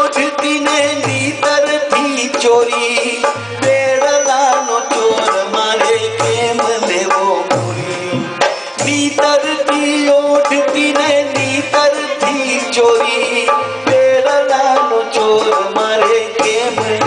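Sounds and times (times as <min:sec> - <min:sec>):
dholak drum rhythm: 0:00.0 - 0:17.0.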